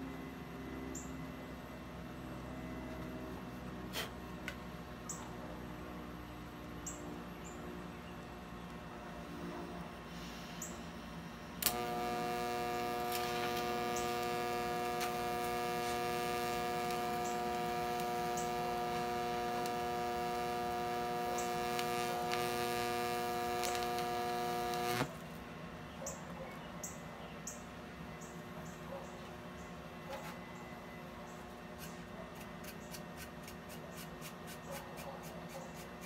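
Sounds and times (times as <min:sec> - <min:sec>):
welding arc crack: 0:11.6 - 0:25.2
welding arc humming: 0:11.6 - 0:25.2.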